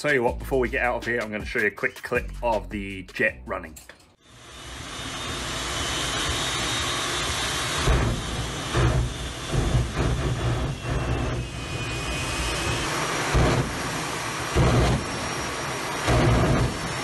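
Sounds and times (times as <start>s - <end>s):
jet engine whine and rush: 4.2s - 17.0s
afterburner surging bursts: 4.3s - 17.0s.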